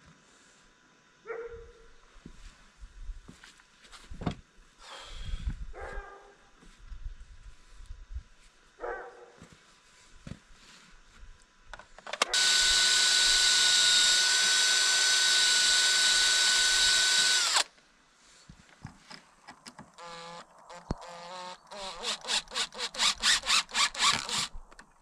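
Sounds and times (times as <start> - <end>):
cordless drill on wood: 12.2 - 17.7, 19.9 - 24.6.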